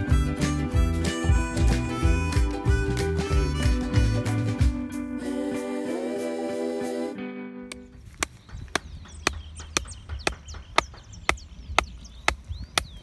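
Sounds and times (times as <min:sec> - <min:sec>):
birds chirping: 0:07.7 - 0:13.0
hammering stake into ground: 0:08.2 - 0:13.0.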